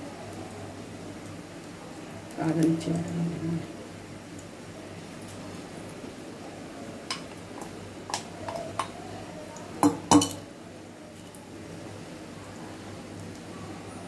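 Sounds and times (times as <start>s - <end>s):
omelette frying in oil: 0.0s - 14.0s
utensils clinking on metal pan: 9.8s - 10.5s.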